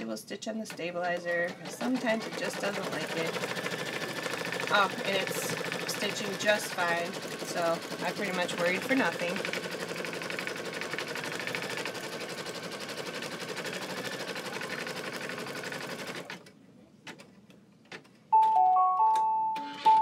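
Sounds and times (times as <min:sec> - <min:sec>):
embroidery machine stitching: 0:00.7 - 0:16.5.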